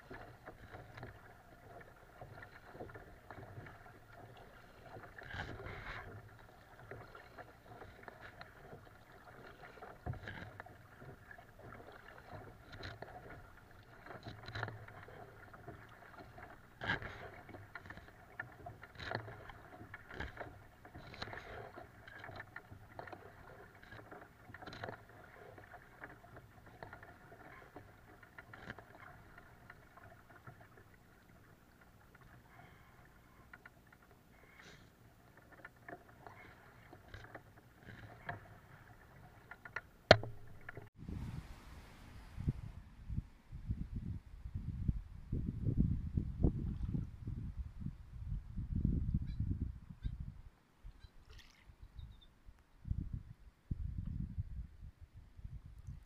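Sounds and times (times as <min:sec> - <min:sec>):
water splashing against kayak: 0:00.0 - 0:43.5.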